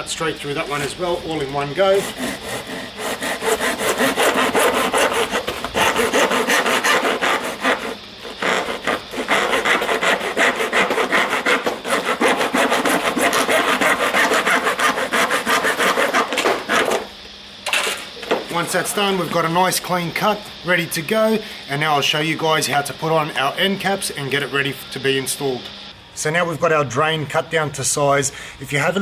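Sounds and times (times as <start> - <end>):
handsaw sawing plastic: 1.8 - 17.1.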